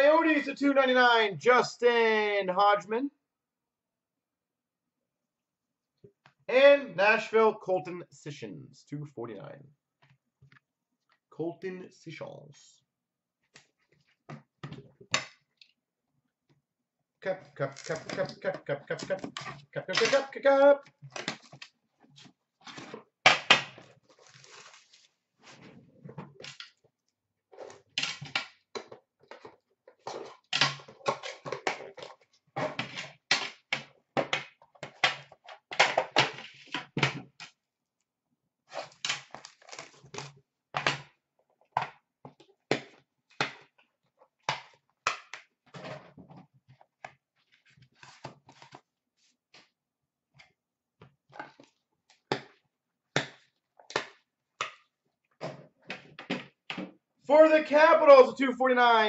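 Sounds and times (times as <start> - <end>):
packaging crinkling: 24.1 - 25.1.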